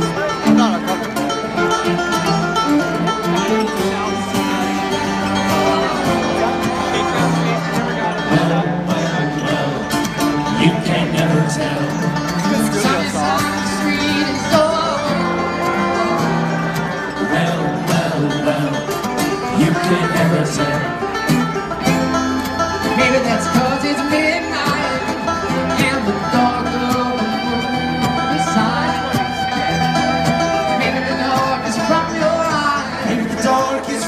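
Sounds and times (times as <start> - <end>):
electric guitar: 0.0 - 34.0
live band playing loudly: 0.0 - 34.0
person singing: 8.0 - 21.0, 22.7 - 34.0.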